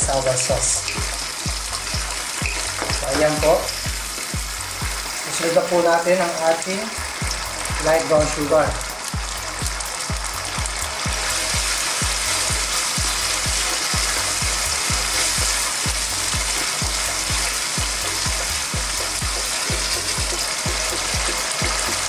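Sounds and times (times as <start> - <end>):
sauce sizzling in a wok: 0.0 - 22.0.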